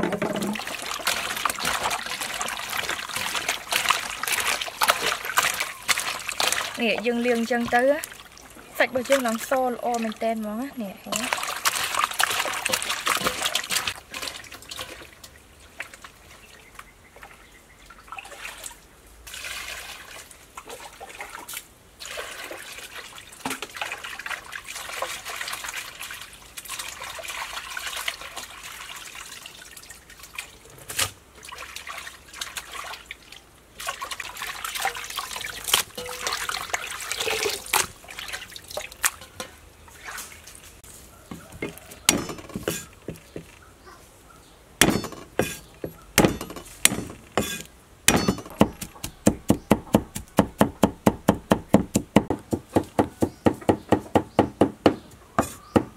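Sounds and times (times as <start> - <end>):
water splashing and trickling: 0.0 - 53.4
sharp knocks: 41.6 - 43.5, 44.8 - 55.9.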